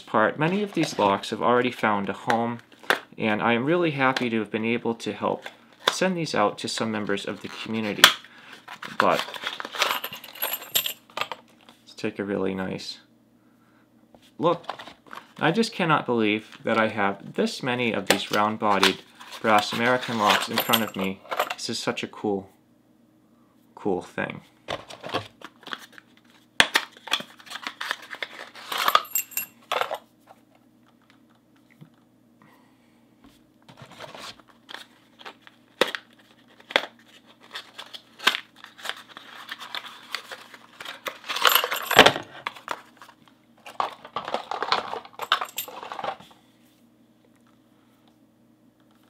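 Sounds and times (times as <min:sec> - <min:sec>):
packaging crinkling and tearing: 0:07.4 - 0:09.9, 0:24.9 - 0:28.9, 0:33.8 - 0:41.5.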